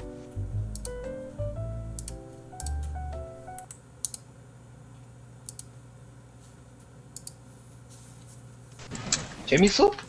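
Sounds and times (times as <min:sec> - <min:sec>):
faint computer clicks: 0:05.4 - 0:05.8, 0:07.1 - 0:07.4.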